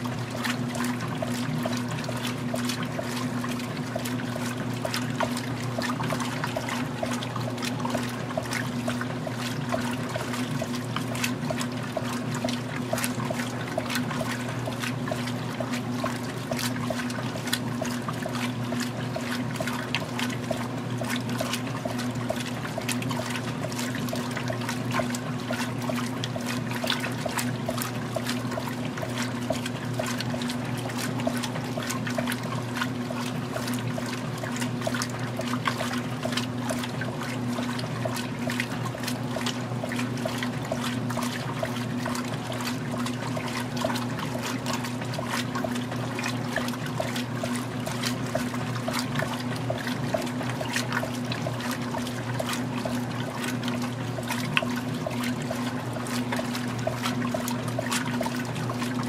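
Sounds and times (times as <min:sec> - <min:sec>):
washer motor hum: 0:00.0 - 0:59.0
water sloshing in washer: 0:00.0 - 0:59.0.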